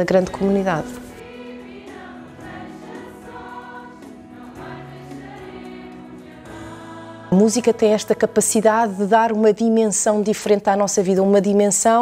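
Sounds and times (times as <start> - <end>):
choir singing: 0.2 - 9.3.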